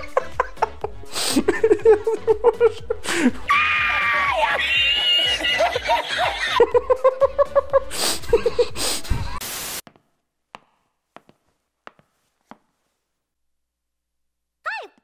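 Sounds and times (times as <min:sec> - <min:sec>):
man laughing high-pitched: 0:00.0 - 0:09.4.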